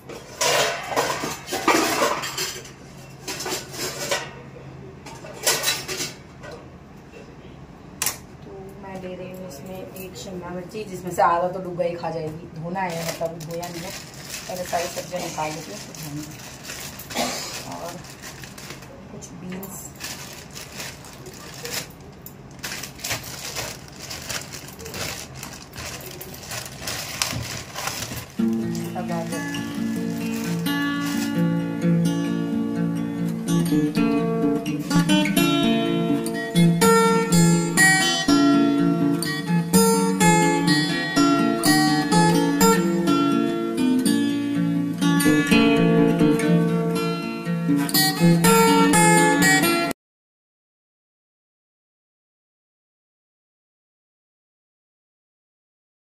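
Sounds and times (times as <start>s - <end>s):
utensils and dishes clattering: 0.0s - 4.4s, 5.1s - 6.7s, 12.8s - 18.9s, 19.5s - 31.5s.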